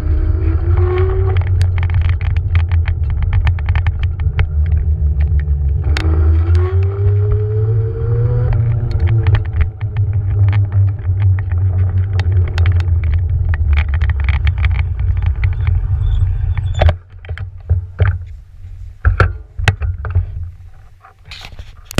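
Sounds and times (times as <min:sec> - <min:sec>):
scooter wheel and wind rumble: 0:00.0 - 0:21.9
rattling clicks: 0:00.7 - 0:07.4, 0:08.4 - 0:18.4.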